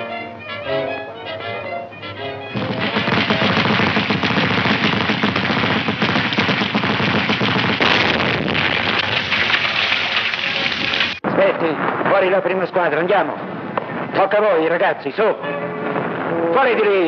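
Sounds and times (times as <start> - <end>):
orchestral film music: 0.0 - 2.6
machine-gun and rifle fire: 2.6 - 11.1.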